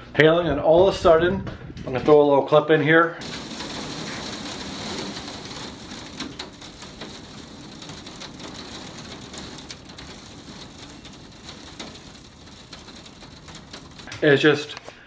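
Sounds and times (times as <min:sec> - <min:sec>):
heavy rain hissing on window: 0:03.2 - 0:14.7
hailstones ticking on glass: 0:03.2 - 0:14.9.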